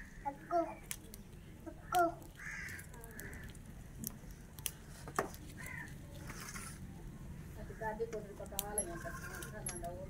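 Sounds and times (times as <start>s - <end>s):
crow cawing: 2.4s - 3.6s, 5.6s - 5.9s.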